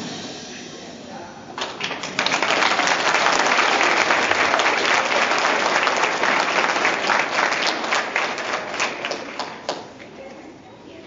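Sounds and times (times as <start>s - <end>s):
audience applauding: 1.6s - 10.1s.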